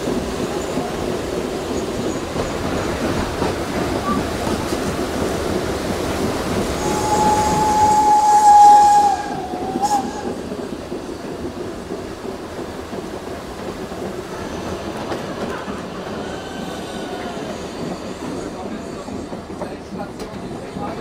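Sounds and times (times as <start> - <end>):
train carriages rumbling and clattering: 0.0 - 21.0
steam locomotive whistle: 6.8 - 10.4.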